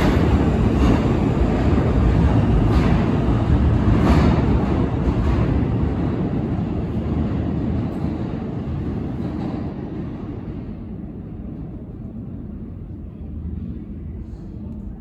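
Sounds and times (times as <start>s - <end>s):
subway train rumbling on rails: 0.0s - 15.0s.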